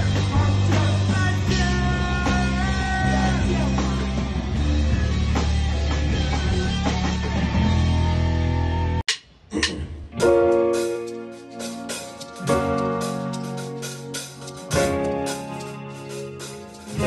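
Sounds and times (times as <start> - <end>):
person singing into a microphone: 0.0 - 4.2
electric guitar: 0.0 - 9.0, 9.8 - 17.0
drum kit: 0.0 - 17.0.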